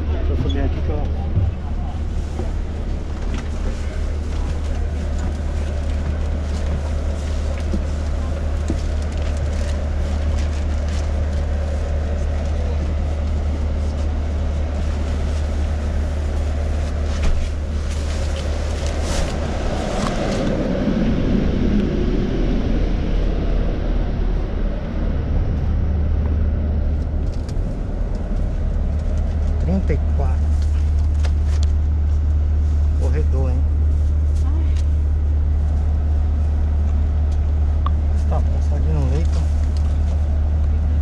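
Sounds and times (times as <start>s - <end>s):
bus engine and air conditioning hum: 0.0s - 41.0s.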